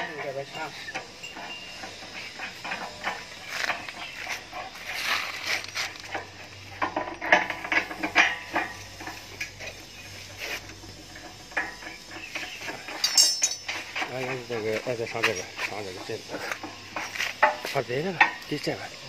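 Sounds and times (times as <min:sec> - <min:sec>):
metal parts clinking and knocking: 0:11.0 - 0:18.7.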